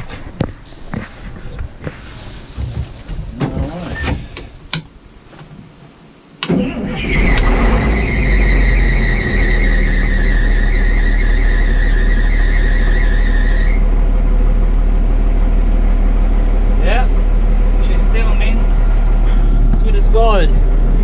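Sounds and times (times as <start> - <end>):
high whine: 5.9 - 21.0
diesel engine cranking and running: 6.4 - 21.0.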